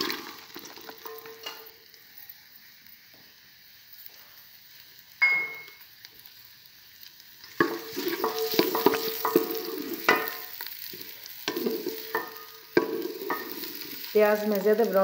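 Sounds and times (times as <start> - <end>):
onions sizzling in oil: 0.0 - 15.0
metal clank with ring: 5.2 - 5.8.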